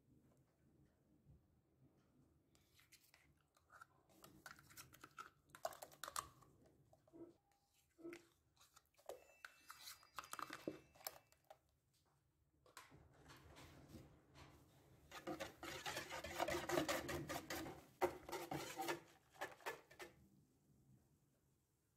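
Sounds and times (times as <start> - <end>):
spoon scraping plastic pot: 3.1 - 6.5, 8.0 - 11.2, 15.1 - 20.2.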